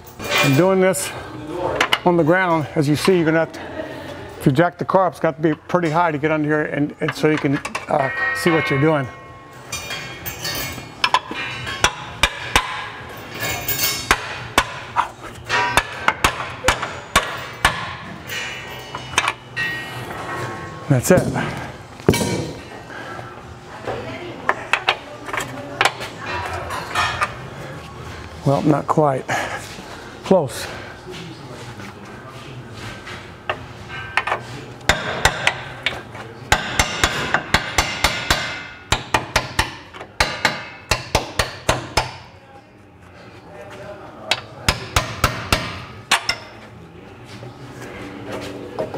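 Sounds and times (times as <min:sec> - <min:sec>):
hammer striking metal: 0:07.7 - 0:13.0, 0:15.5 - 0:18.6, 0:36.5 - 0:42.3, 0:44.7 - 0:46.5.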